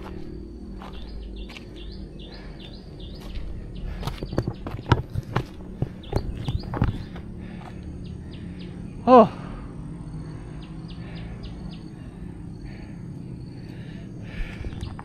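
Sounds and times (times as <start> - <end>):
high bird chirps: 5.8 - 7.2
person saying oh: 9.1 - 9.5.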